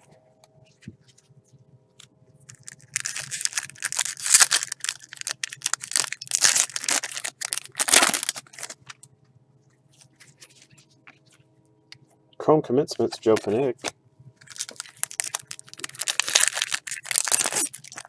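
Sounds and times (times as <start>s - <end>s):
foil wrapper crinkling and tearing: 2.5s - 9.0s, 14.4s - 18.0s.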